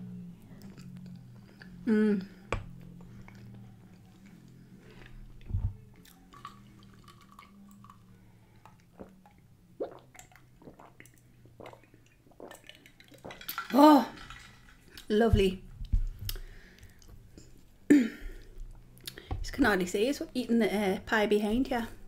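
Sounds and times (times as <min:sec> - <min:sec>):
low steady hum: 0:00.0 - 0:22.0
person chewing food: 0:00.4 - 0:08.0, 0:08.6 - 0:13.6, 0:15.8 - 0:17.6.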